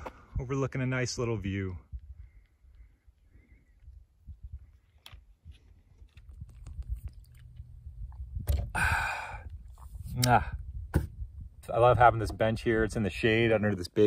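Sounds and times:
man gulping water from bottle: 5.9 - 10.1
bottle clicks and mouth sounds: 6.1 - 10.4
breathy exhale: 8.7 - 9.5.

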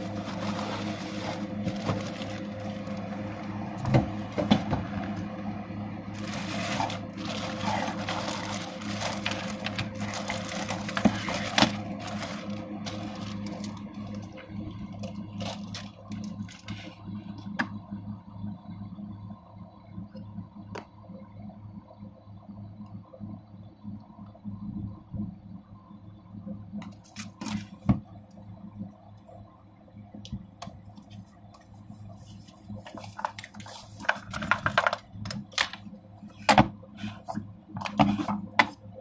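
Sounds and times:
plastic bag and cardboard rustling: 0.0 - 3.5, 6.1 - 17.0, 32.2 - 35.8
steady low hum: 0.0 - 39.0.

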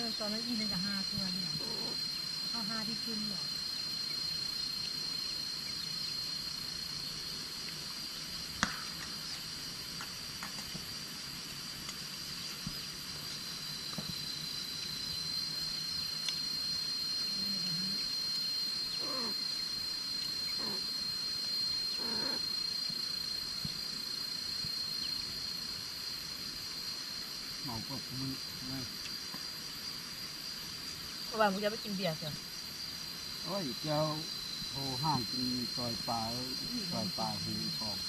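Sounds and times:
high-pitched insect chorus: 0.0 - 38.0.

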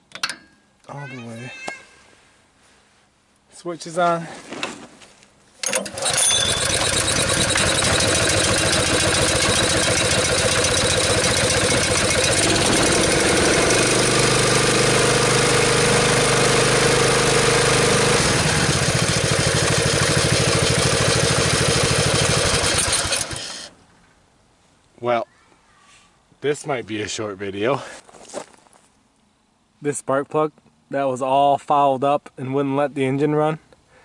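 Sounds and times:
pull-start cord: 5.6 - 15.7, 17.8 - 23.7
small engine running: 5.6 - 23.7.

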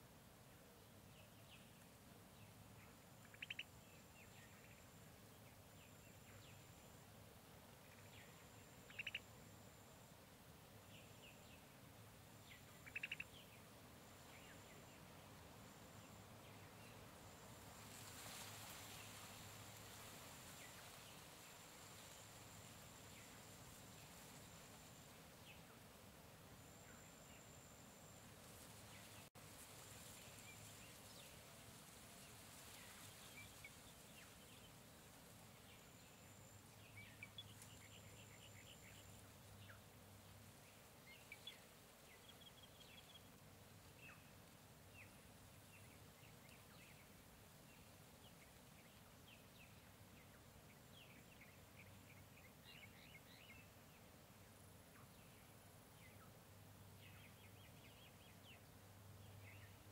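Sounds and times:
soft background hiss: 0.0 - 59.9
bird chirps and calls: 3.2 - 3.7, 8.9 - 9.2, 12.6 - 13.5
high thin insect-like tone: 12.3 - 43.4.

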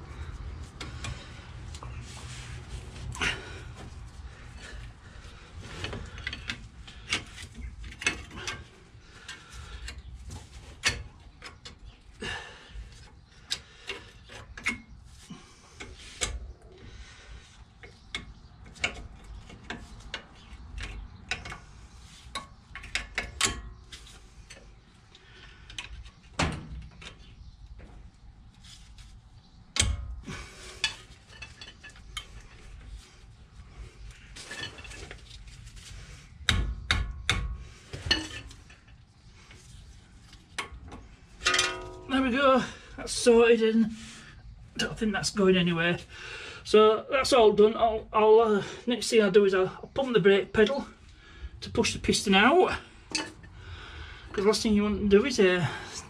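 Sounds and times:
metal knocks: 41.4 - 42.2.

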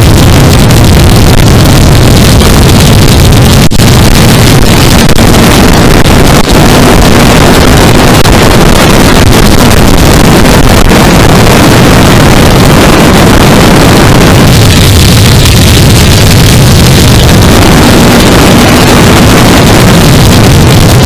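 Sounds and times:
wind rush on microphone: 0.0 - 21.0
motorcycle engine running: 11.7 - 21.0.

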